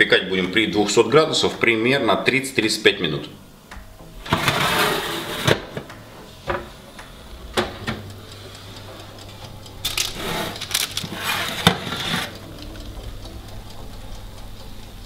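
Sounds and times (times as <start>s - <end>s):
oven hum: 0.0s - 15.0s
baking tray scraping on wire rack: 4.2s - 5.8s, 10.0s - 12.4s.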